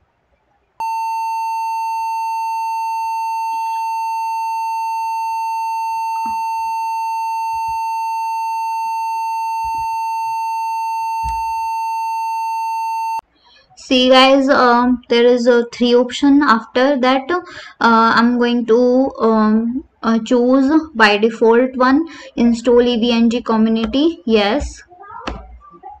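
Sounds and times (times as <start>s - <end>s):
high steady electronic beep: 0.8s - 13.2s.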